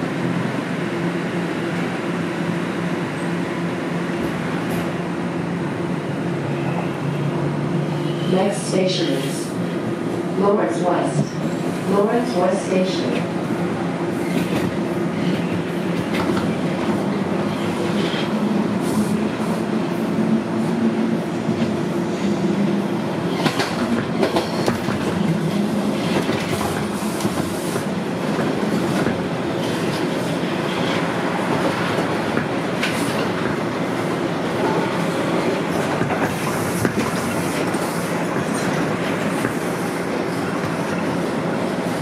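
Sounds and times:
passing subway train: 0:00.0 - 0:42.0
subway train rumble and motor hum: 0:00.0 - 0:42.0
wheels clacking on rails: 0:22.6 - 0:41.2.

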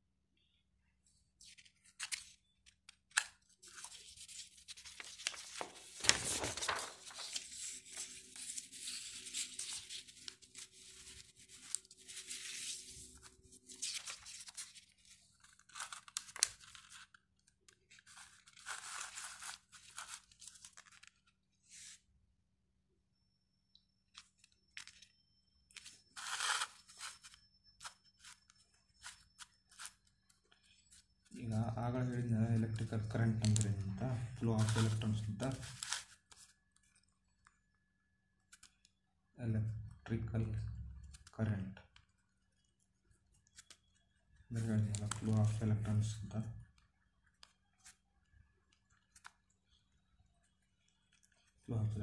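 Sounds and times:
paper rustling and crinkling: 0:01.4 - 0:22.0, 0:25.7 - 0:31.4, 0:32.7 - 0:37.5, 0:43.4 - 0:44.0, 0:44.6 - 0:45.9, 0:48.7 - 0:49.5.

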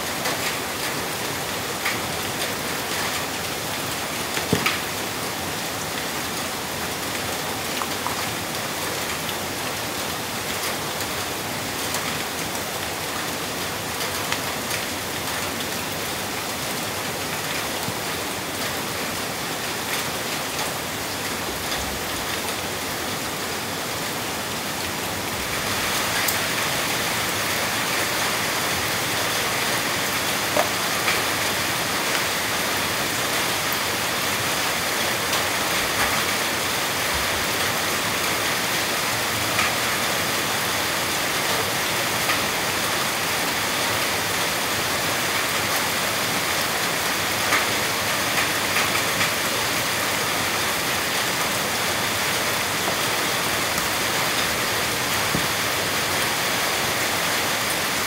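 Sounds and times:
steady rain falling: 0:00.0 - 0:58.0
faint rain taps: 0:28.7 - 0:31.5, 0:55.2 - 0:55.6.

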